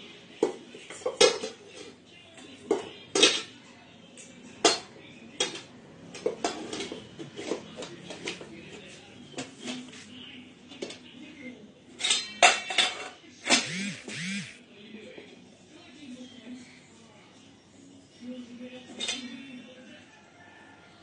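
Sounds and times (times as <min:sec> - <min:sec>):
metal pots clanking: 0:04.6 - 0:08.4.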